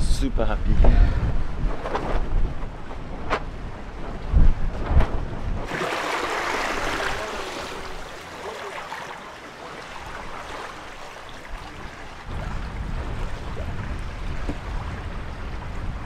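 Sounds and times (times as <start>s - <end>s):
water rushing along a hull: 5.6s - 16.0s.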